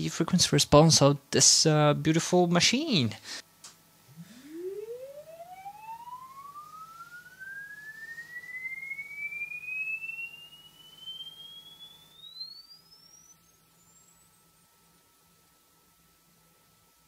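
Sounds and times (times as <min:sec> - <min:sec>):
sine tone rising in pitch: 0:04.1 - 0:14.8.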